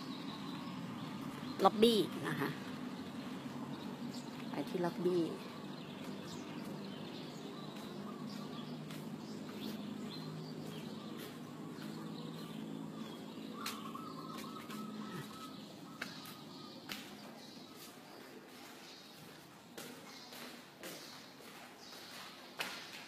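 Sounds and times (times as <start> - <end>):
footsteps: 4.2 - 23.0
faint bird chirps: 6.2 - 19.4.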